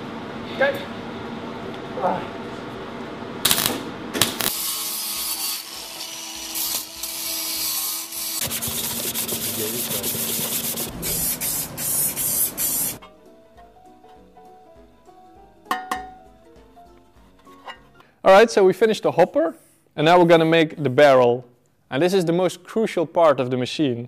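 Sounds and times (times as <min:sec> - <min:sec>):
arc welding crackling hiss: 0:03.4 - 0:13.0
faint background music: 0:13.0 - 0:21.4.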